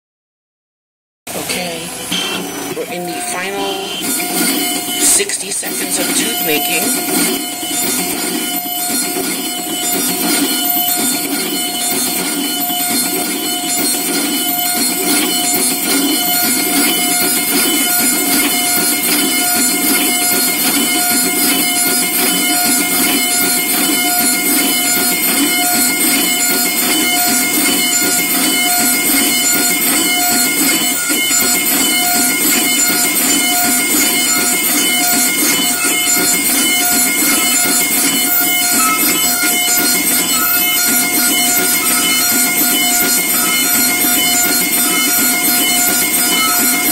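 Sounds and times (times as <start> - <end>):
milling spindle whine: 1.3 - 46.9.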